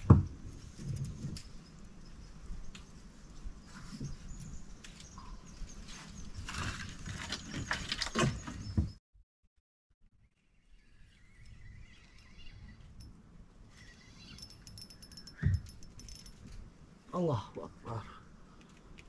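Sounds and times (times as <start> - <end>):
faint outdoor sound: 0.0 - 9.0, 10.0 - 19.0
fishing tackle clicking and rattling: 14.3 - 16.5.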